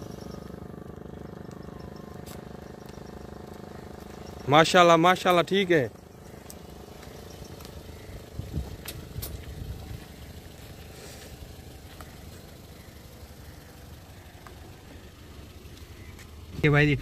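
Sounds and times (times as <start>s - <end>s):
car engine and tyre hum: 0.0s - 17.0s.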